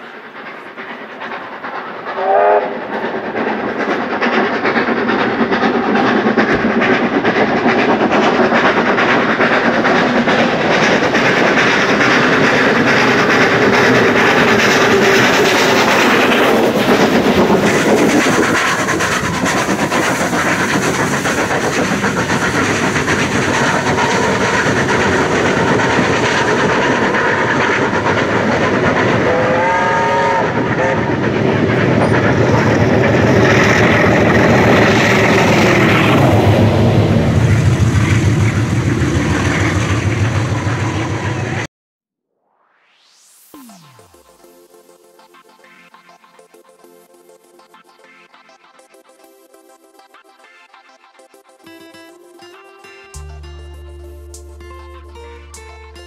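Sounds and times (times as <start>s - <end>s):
steam locomotive passing: 0.0s - 41.7s, 42.8s - 50.6s, 51.4s - 56.0s
train whistle blast: 2.2s - 2.8s, 29.2s - 31.2s.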